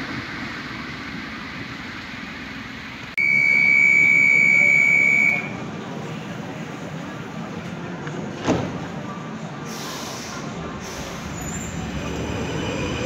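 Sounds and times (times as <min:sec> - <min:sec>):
faint tram rumble: 0:04.1 - 0:13.0.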